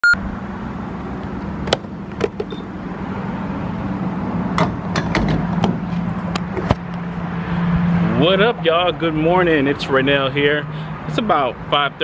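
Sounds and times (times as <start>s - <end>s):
gas pump nozzle clicks and knocks: 1.6s - 2.6s, 4.6s - 6.8s.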